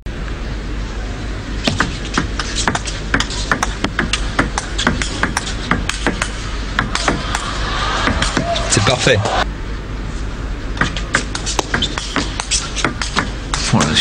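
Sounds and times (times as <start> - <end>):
table tennis ball clicking: 1.7 - 7.4, 10.8 - 14.0.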